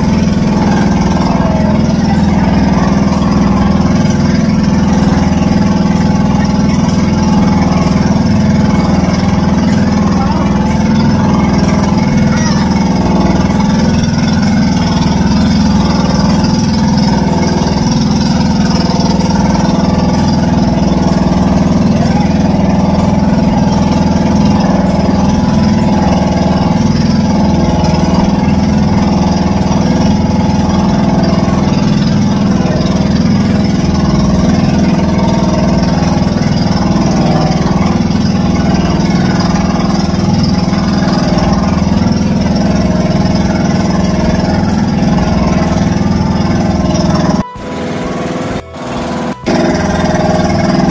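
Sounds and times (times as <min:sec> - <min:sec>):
boat engine running steadily: 0:00.0 - 0:50.9.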